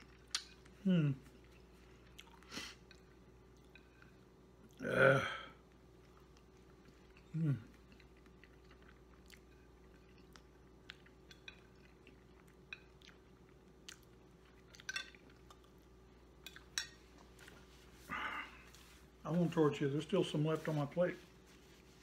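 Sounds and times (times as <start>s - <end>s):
man chewing food: 0.0s - 4.8s, 5.6s - 19.3s
man humming: 0.8s - 1.3s.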